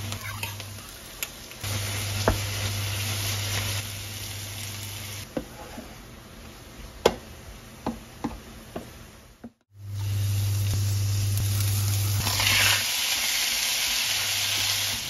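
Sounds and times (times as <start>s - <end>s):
food sizzling in a frying pan: 0.0s - 5.3s, 9.8s - 15.0s.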